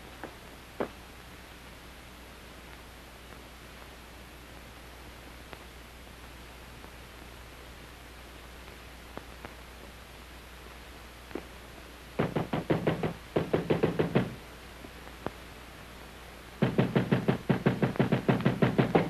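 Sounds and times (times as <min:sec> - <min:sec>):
rapid knocking on a door: 0:12.2 - 0:14.4, 0:16.6 - 0:19.0.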